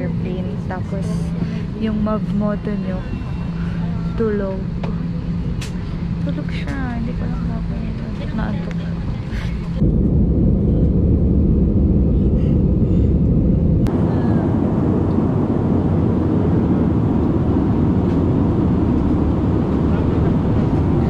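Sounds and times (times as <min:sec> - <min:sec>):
jet engines in cabin: 0:00.0 - 0:21.0.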